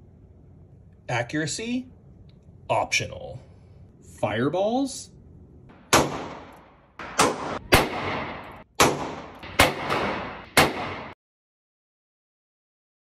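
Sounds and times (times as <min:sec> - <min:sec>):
revolver gunshots with echo: 0:05.7 - 0:11.2.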